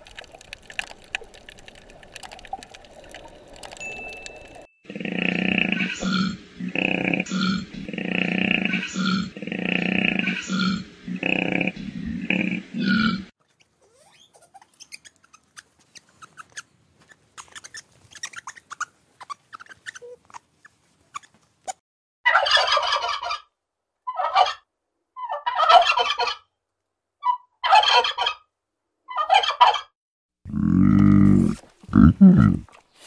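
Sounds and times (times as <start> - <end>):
turkeys gobbling: 22.3 - 23.4, 25.2 - 26.4.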